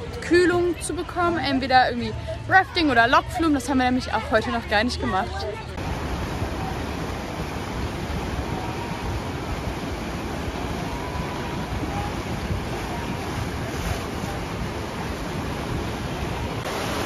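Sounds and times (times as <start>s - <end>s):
churning river water rushing: 0.0s - 17.0s
wind buffeting microphone: 5.8s - 17.0s.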